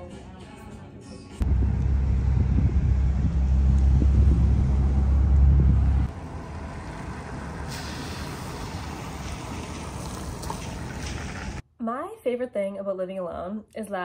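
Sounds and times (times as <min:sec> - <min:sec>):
heavy vehicle engine rumbling: 0:01.4 - 0:11.6
steady traffic noise: 0:01.4 - 0:11.6.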